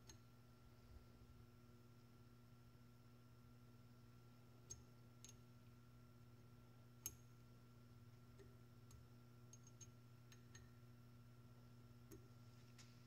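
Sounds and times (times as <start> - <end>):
steady low hum: 0.0 - 13.0
small metal clicks of hex key: 8.9 - 10.7.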